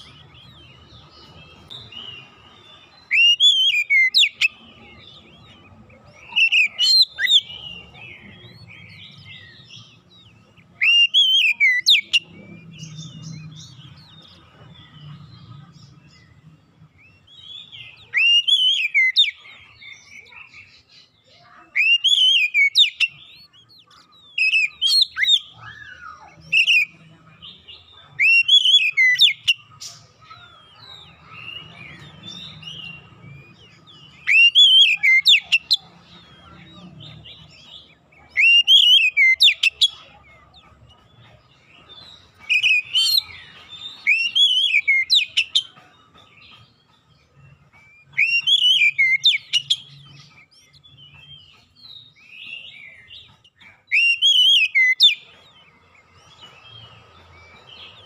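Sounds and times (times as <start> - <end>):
bird singing whistled phrases: 3.0 - 4.6, 10.7 - 12.3, 17.4 - 19.4, 21.4 - 23.5, 31.5 - 35.8, 48.0 - 50.5.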